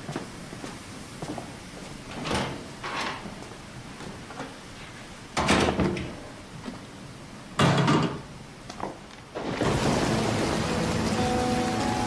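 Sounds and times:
heavy rain: 9.4 - 12.0.

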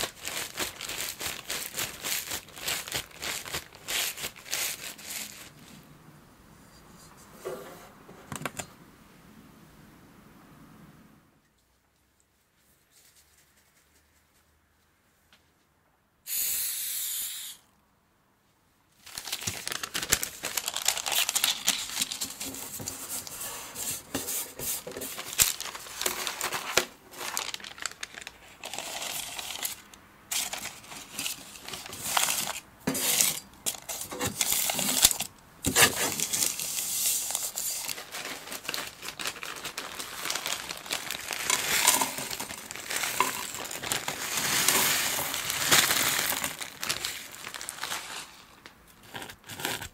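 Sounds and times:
baking paper crinkling: 0.0 - 5.8, 19.0 - 49.9
aerosol spray hiss: 16.3 - 17.6
biscuit crumbs poured from bag: 36.2 - 48.6.

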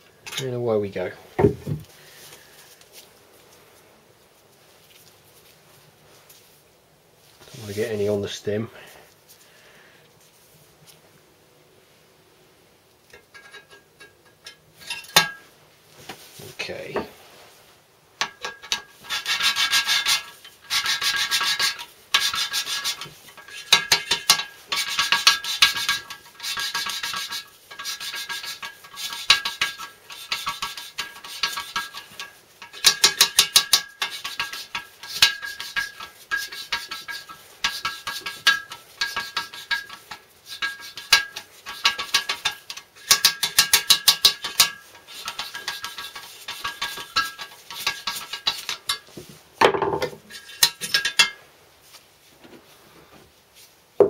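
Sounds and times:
gritty rasping of valve lapping: 18.2 - 49.1, 50.3 - 51.3.

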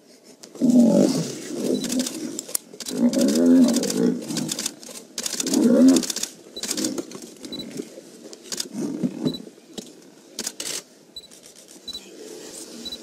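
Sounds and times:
camera shutter clicks: 1.8 - 7.1, 8.5 - 8.7, 9.8 - 11.7.

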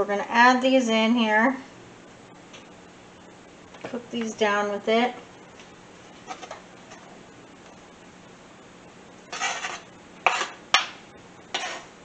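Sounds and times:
sausage cooking in a skillet: 5.3 - 12.0
knife scraping a cutting board: 6.2 - 6.6, 9.3 - 10.6, 11.5 - 11.9.

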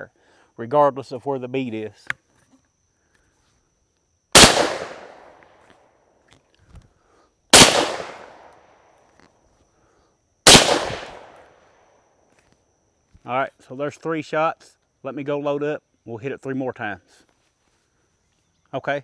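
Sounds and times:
shotgun shots: 4.4 - 5.4, 7.5 - 8.5, 10.5 - 11.5.

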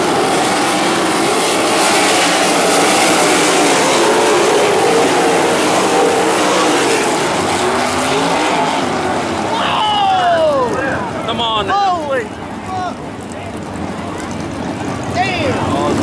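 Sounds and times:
race car engines passing: 0.0 - 16.0.

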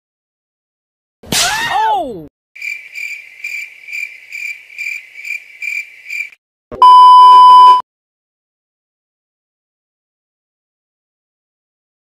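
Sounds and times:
cricket chirping: 2.6 - 6.4
test-tone beep with static: 6.7 - 7.8.

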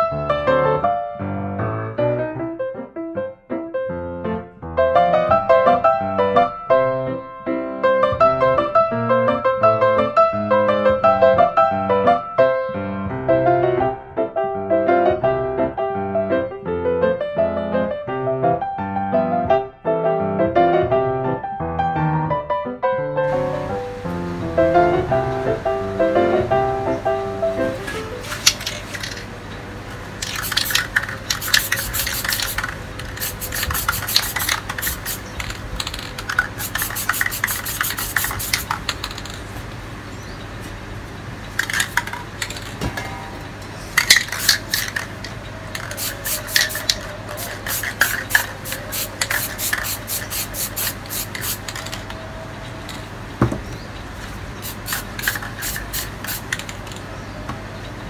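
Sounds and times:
spray paint can bursts: 27.9 - 29.3, 30.2 - 39.5, 41.6 - 42.7, 44.0 - 52.2, 54.6 - 57.0.

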